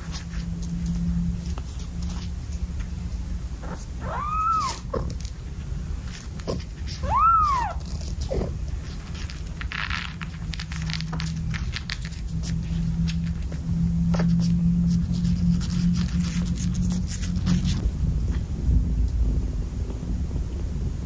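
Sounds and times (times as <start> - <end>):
steady low hum: 0.0 - 21.0
cat meowing: 4.0 - 5.0, 7.0 - 8.6.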